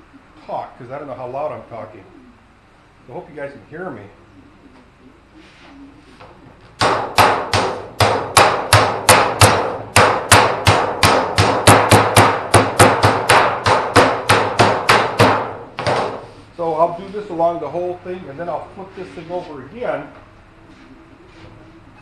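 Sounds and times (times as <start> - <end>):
hammer blows on sheet metal: 6.8 - 16.4.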